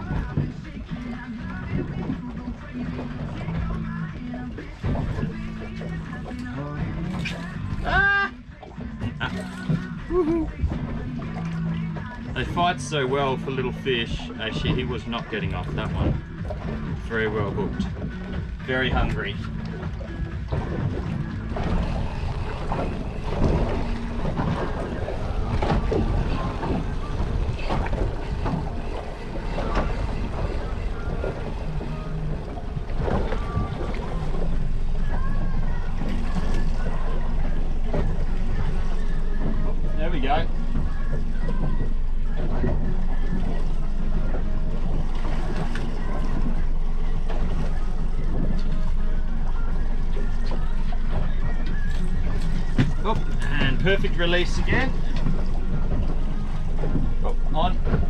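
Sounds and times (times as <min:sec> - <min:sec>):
choppy sea water: 0:00.0 - 0:58.0
short splashes: 0:00.0 - 0:58.0
waves slapping against boat hull: 0:00.0 - 0:58.0
wind: 0:00.0 - 0:58.0
wind buffeting microphone: 0:19.7 - 0:35.8.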